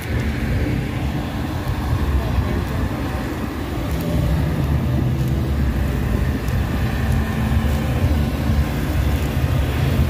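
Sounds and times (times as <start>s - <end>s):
busy city street rumble: 0.0s - 10.0s.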